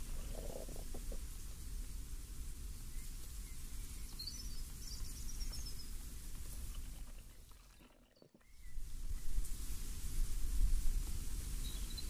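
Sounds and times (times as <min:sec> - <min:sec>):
low rumble of breeze: 0:00.0 - 0:12.0
small bird chirping: 0:02.9 - 0:09.4.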